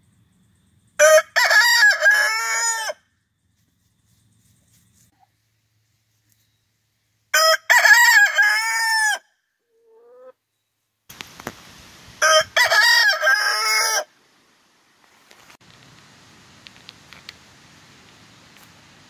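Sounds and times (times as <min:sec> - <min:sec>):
rooster crowing: 0:01.0 - 0:03.0, 0:07.3 - 0:09.3, 0:12.2 - 0:14.1.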